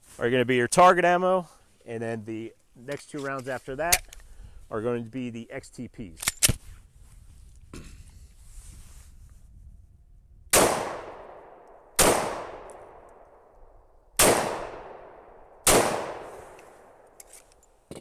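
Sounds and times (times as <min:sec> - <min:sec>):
pistol shots with echo: 0:10.5 - 0:13.3, 0:14.2 - 0:17.0.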